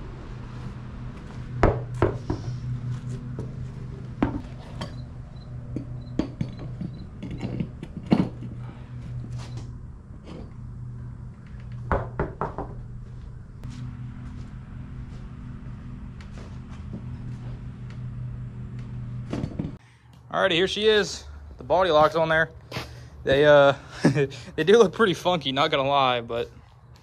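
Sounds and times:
steady low hum: 0.0 - 27.0
metal tools clinking: 5.7 - 8.6.

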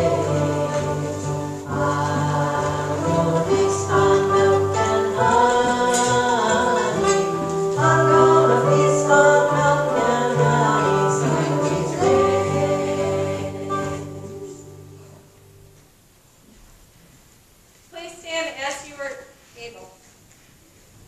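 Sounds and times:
man and woman singing worship song: 0.0 - 14.6.

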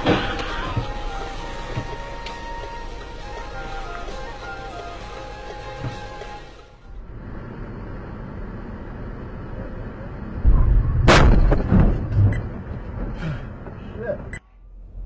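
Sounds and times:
car crash bang: 0.0 - 1.0, 10.4 - 13.8
road noise: 0.0 - 15.0.

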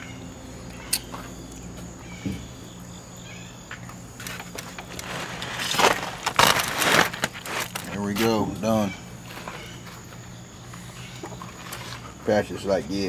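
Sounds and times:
low steady hum: 0.0 - 13.0
foil rustling and crinkling: 4.1 - 12.2.

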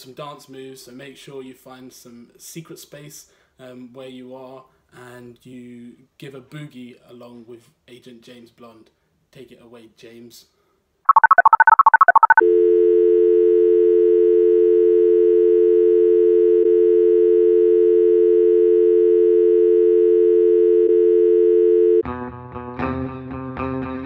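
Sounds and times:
keypad dialing beeps: 11.1 - 12.4
telephone dial tone: 11.1 - 22.0.

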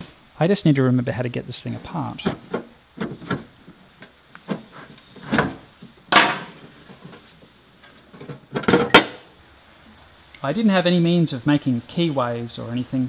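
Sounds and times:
metal parts clunking: 2.2 - 9.2.

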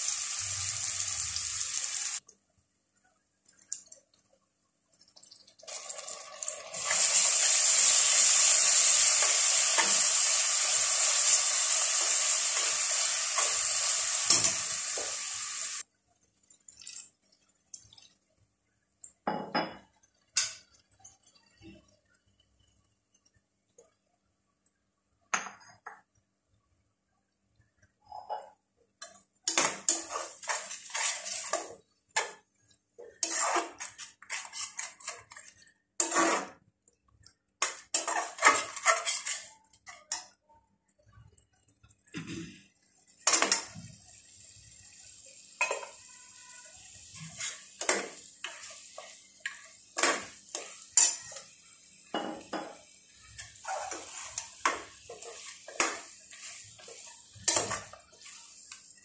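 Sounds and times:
faint frying sizzle: 0.0 - 2.3, 5.2 - 24.1, 29.0 - 36.6, 37.2 - 59.0
spatula scraping metal pot: 29.5 - 31.8, 33.1 - 36.6, 37.9 - 40.2, 47.2 - 48.8, 53.4 - 58.8.

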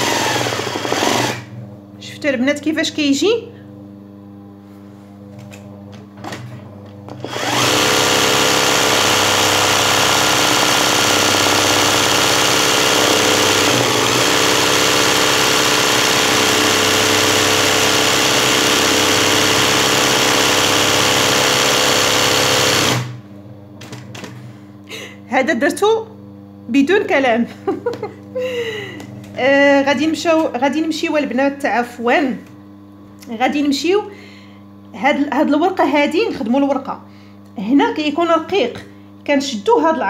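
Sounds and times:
sewing machine stitching: 0.0 - 1.5, 7.2 - 23.2.

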